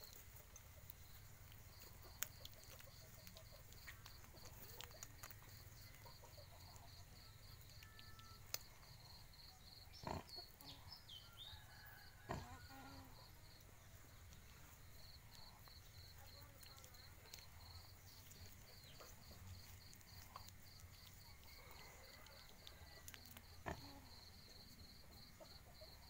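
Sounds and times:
insect chirping: 0:00.0 - 0:26.0
pig grunting: 0:10.0 - 0:10.4, 0:12.3 - 0:12.6, 0:23.6 - 0:24.0.

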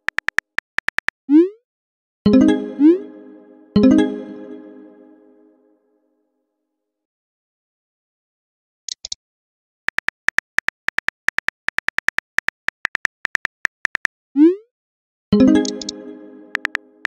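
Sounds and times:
phone keyboard typing clicks: 0:00.0 - 0:01.2, 0:09.9 - 0:14.1, 0:15.6 - 0:16.8.

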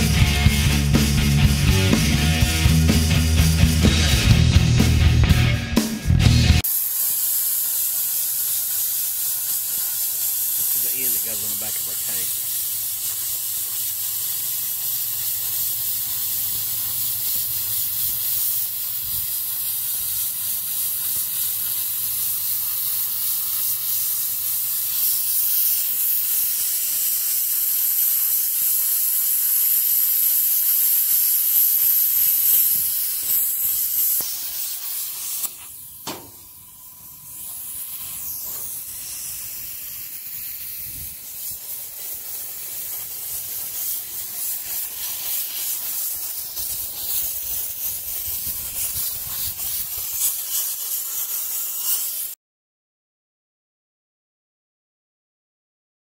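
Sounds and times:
cutting torch hissing: 0:00.0 - 0:52.4
sharp click: 0:35.4 - 0:36.4.

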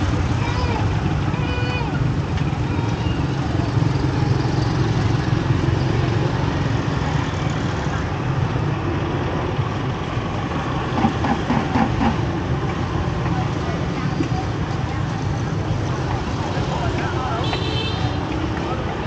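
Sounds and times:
faint background voices: 0:11.0 - 0:19.0.

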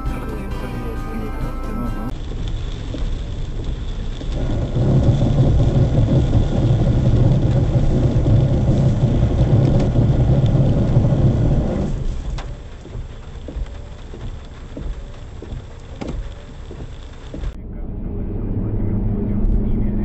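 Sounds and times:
truck passing alongside: 0:00.0 - 0:02.1, 0:17.6 - 0:20.0
vehicle engine and road noise: 0:00.0 - 0:20.0.

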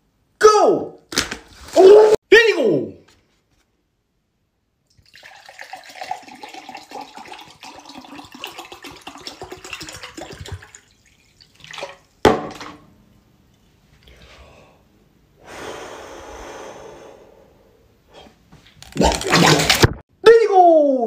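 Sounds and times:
liquid pouring into glass: 0:04.9 - 0:12.0.

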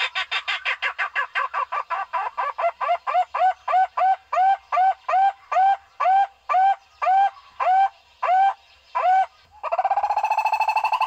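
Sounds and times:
barbet hooting calls: 0:00.0 - 0:11.0
fast rolling bird trill: 0:09.0 - 0:11.0.

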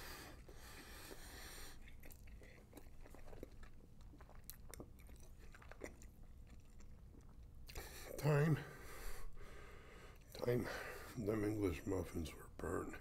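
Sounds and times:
faint chewing: 0:00.0 - 0:08.2.

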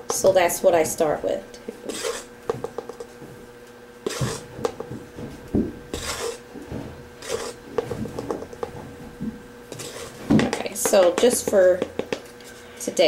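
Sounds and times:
spoon scooping powder: 0:01.8 - 0:03.1, 0:04.0 - 0:04.4, 0:05.9 - 0:06.4, 0:07.2 - 0:07.6, 0:09.7 - 0:10.1.

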